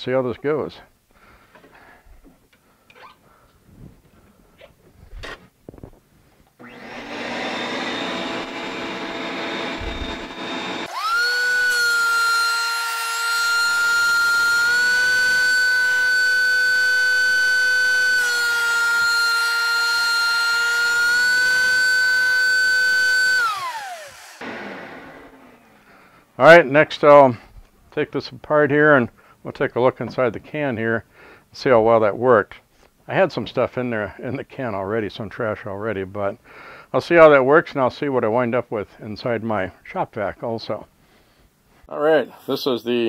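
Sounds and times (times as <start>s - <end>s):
planer motor whining: 6.6s - 25.8s
shop vacuum running: 6.6s - 25.8s.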